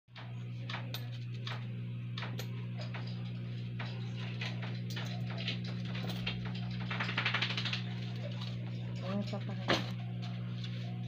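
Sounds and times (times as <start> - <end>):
low electrical hum: 0.1 - 11.0.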